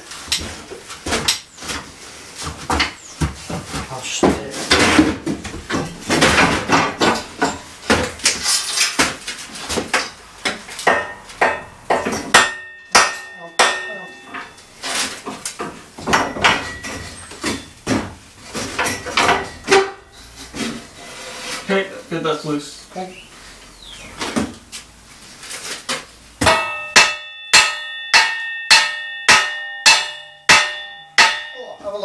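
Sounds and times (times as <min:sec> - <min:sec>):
hammer blows on steel: 0:10.9 - 0:14.5, 0:26.4 - 0:31.8
ringing metallic note: 0:12.5 - 0:14.8, 0:26.5 - 0:32.0.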